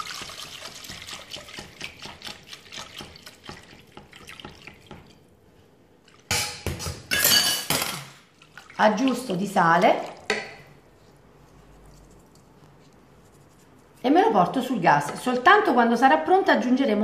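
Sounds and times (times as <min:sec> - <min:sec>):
milk pouring into saucepan: 0:00.0 - 0:05.3.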